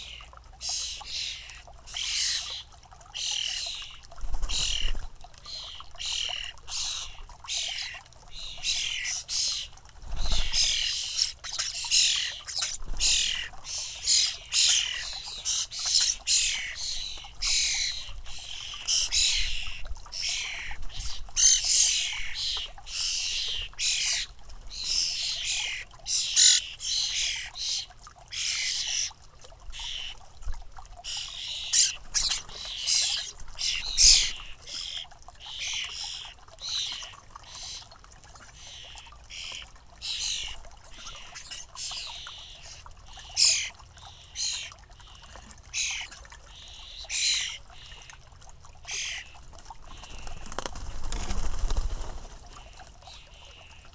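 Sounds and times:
fledgling birds begging calls: 0.0 - 4.9, 5.5 - 29.1, 31.1 - 37.9.

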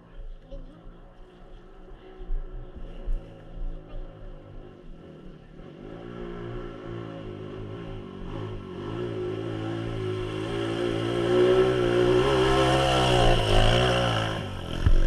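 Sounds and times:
dirt bike engine revving: 3.4 - 15.0.

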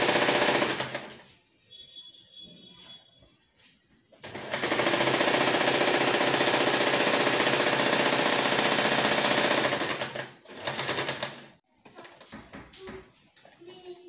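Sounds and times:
sewing machine stitching: 0.0 - 1.2, 4.2 - 12.2.

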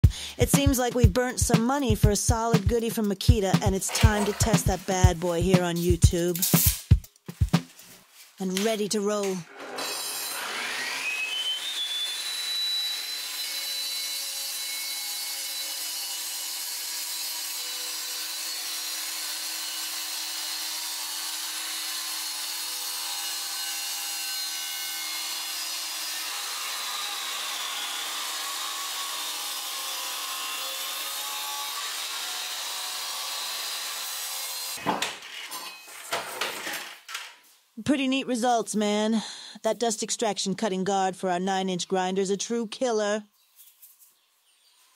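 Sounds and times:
angle grinder cutting tile: 3.7 - 5.8, 9.4 - 37.0.

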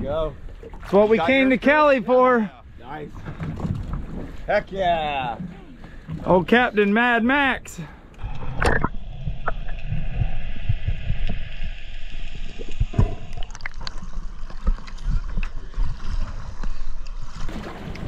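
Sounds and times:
muffled underwater rumbling: 7.9 - 18.0.

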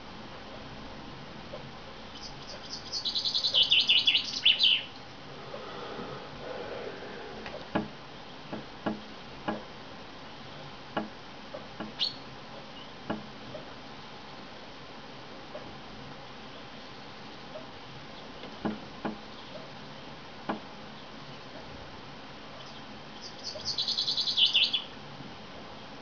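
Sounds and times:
beak tapping on window glass: 8.5 - 9.7.

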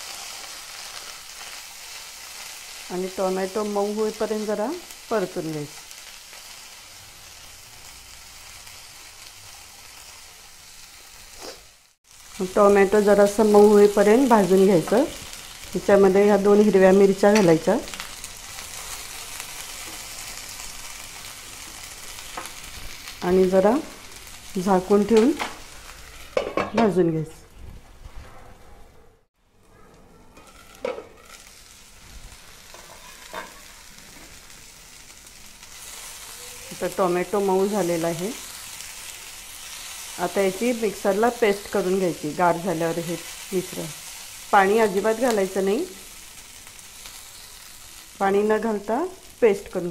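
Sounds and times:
vegetables sizzling in hot oil: 0.0 - 27.4, 30.4 - 49.9.

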